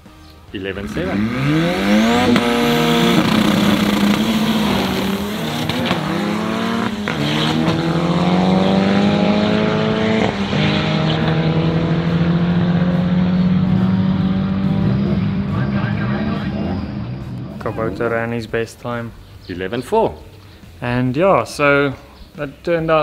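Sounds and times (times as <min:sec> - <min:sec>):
pickup engine at full throttle: 0:00.8 - 0:18.1.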